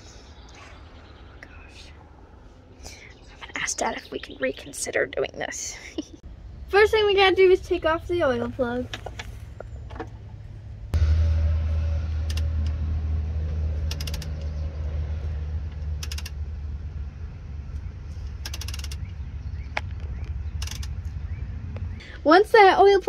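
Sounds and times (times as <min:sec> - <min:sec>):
loud low rumble: 0:10.2 - 0:22.2
ratchet clicking: 0:12.3 - 0:12.6, 0:13.8 - 0:14.4, 0:15.8 - 0:16.4, 0:18.3 - 0:19.1, 0:20.6 - 0:21.0.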